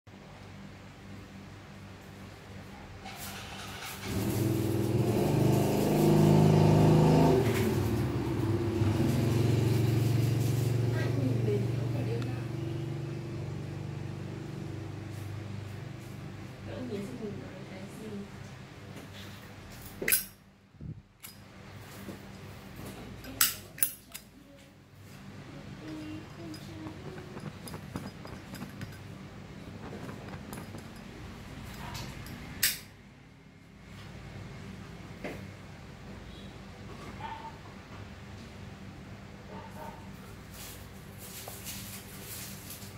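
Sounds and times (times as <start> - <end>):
car engine starting and revving: 3.3 - 15.2.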